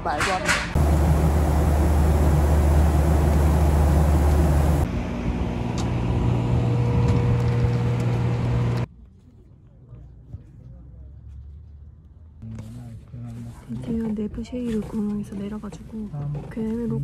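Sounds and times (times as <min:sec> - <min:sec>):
airliner cabin roar: 0:00.7 - 0:08.9
aircraft hum with faint whine: 0:00.8 - 0:08.9.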